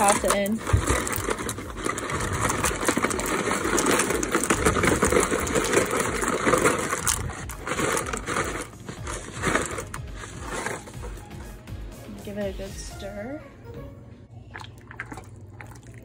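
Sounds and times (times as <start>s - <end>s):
dry pasta rattling out of box: 0.0s - 11.2s.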